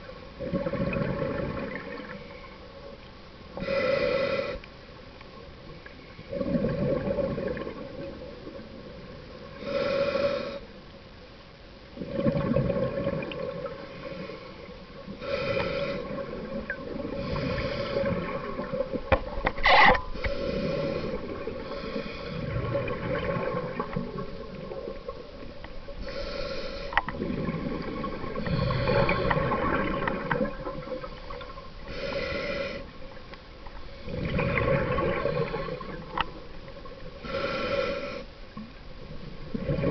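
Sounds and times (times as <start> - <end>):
faint steady hum: 0.0 - 39.9
regulator breathing hiss: 3.6 - 4.7, 9.6 - 10.7, 13.8 - 16.2, 17.2 - 18.2, 20.1 - 22.5, 26.0 - 27.0, 31.9 - 33.0, 37.2 - 38.4.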